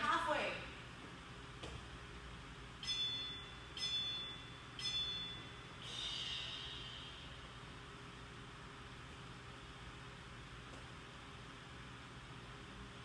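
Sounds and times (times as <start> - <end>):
low hum: 0.0 - 13.0
long buzzy timer tone: 2.8 - 7.9.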